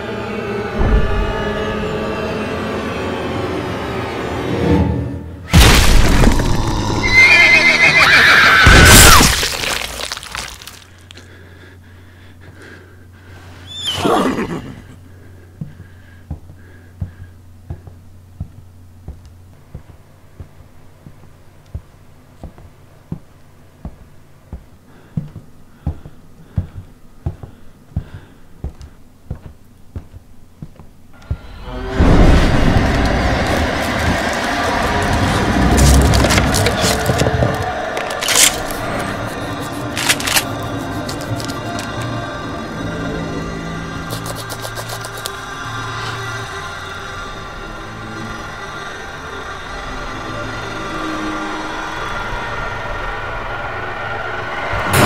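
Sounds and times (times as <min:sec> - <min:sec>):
shrill wavering cry: 0:06.7 - 0:09.4.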